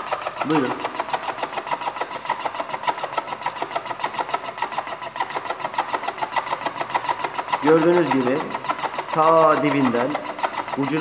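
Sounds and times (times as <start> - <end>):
cigarette machine clattering: 0.0 - 11.0.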